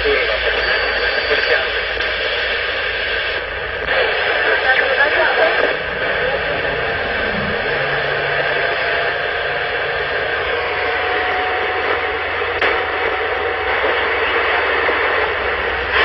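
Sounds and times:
radio static hiss: 0:00.0 - 0:16.0
faint steady whistle: 0:00.3 - 0:02.0.

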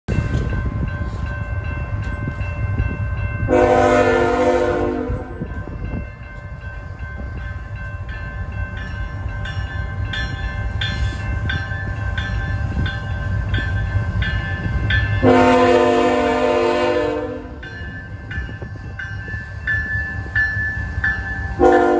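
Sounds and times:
locomotive horn blast: 0:03.5 - 0:05.5, 0:15.2 - 0:17.6, 0:21.6 - 0:21.9.

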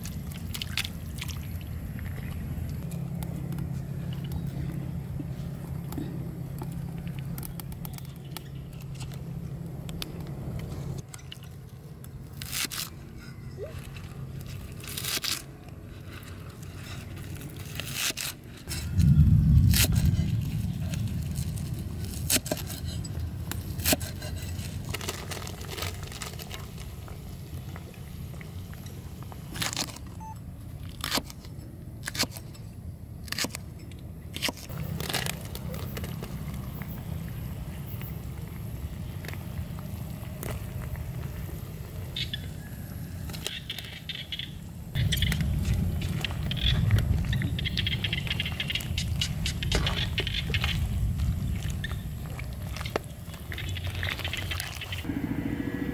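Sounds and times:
low rumble: 0:18.7 - 0:23.5, 0:54.9 - 0:55.9.

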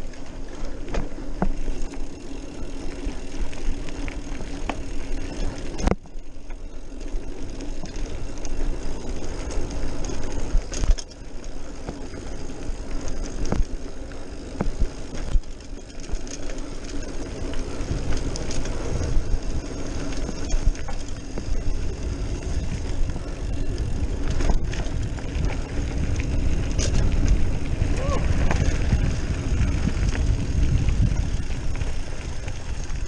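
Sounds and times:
bike tyres on dirt: 0:00.0 - 0:33.0
bike clanking over bumps: 0:00.2 - 0:33.0
wind on microphone: 0:20.3 - 0:33.0.

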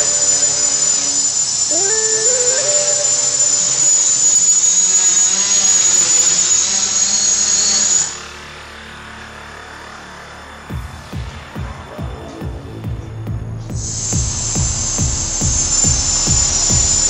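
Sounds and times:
drone motors high-pitched whine: 0:00.0 - 0:17.0
low hum: 0:01.3 - 0:07.4.

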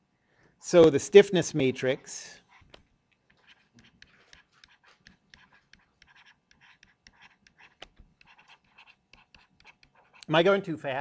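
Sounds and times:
stylus scratching on tablet screen: 0:02.4 - 0:10.5.

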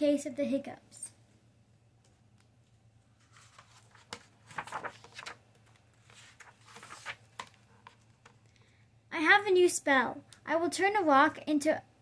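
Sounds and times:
book pages rustling and turning: 0:02.1 - 0:08.4.

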